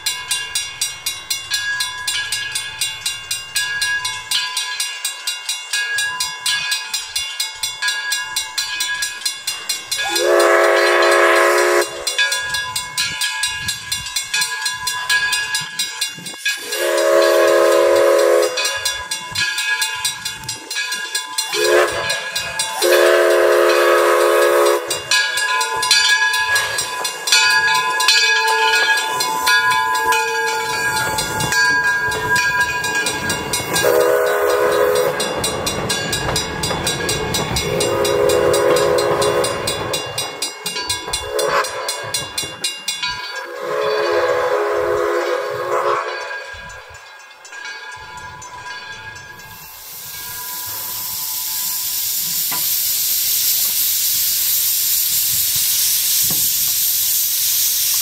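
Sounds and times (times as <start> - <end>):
train coaches rolling past: 0.0 - 58.0
steam locomotive whistle blasts: 9.9 - 13.2, 16.4 - 19.4, 21.3 - 40.3, 41.1 - 42.2, 43.3 - 46.9, 49.4 - 58.0.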